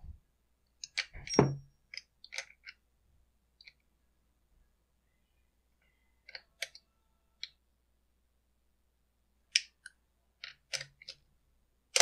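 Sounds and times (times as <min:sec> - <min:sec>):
metal tools clicking and knocking: 0:00.8 - 0:02.8.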